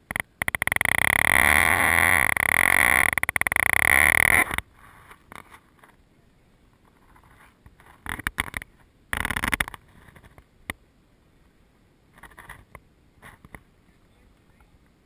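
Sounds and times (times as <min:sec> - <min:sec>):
canoe scraping twigs and brush: 0:01.3 - 0:06.0, 0:06.8 - 0:10.5.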